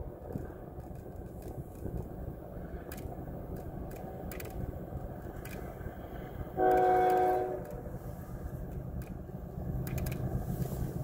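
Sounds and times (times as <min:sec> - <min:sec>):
train rumble: 0:00.0 - 0:11.0
locomotive air horn blast: 0:06.6 - 0:07.8.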